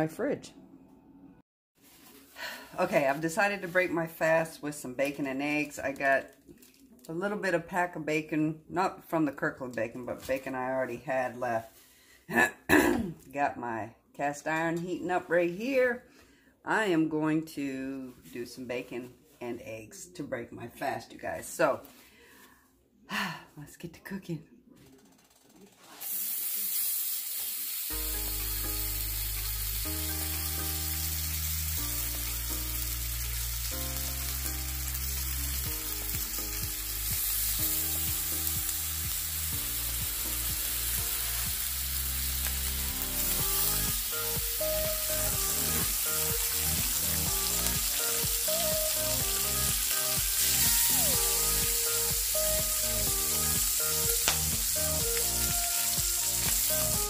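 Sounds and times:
bacon sizzling in skillet: 25.9s - 57.0s
background music: 27.9s - 57.0s.

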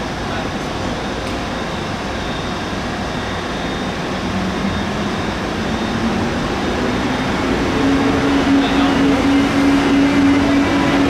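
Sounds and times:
train running rumble: 2.6s - 11.0s.

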